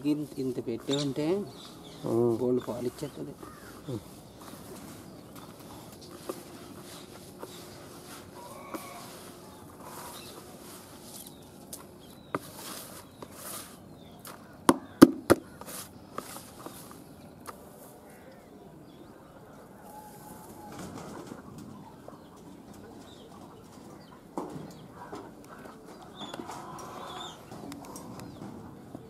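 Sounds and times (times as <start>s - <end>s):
chickens and birds calling: 0.0s - 29.0s
sharp knocks: 14.7s - 15.5s.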